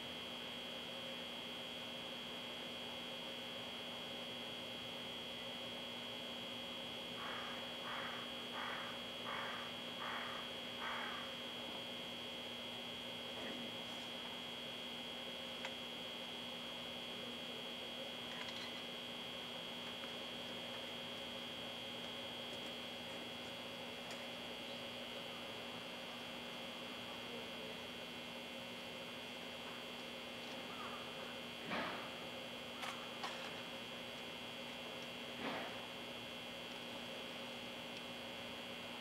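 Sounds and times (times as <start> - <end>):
electrical hum: 0.0 - 39.0
thin high whine: 0.0 - 39.0.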